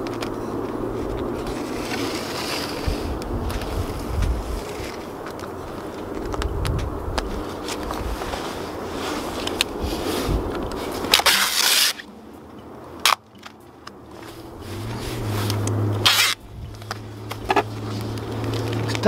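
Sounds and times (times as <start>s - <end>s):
plastic sheeting crinkling: 0.0s - 6.5s, 7.2s - 12.1s
adhesive tape ripping off roll: 1.0s - 3.9s, 10.8s - 12.1s, 13.0s - 13.5s, 14.6s - 19.0s.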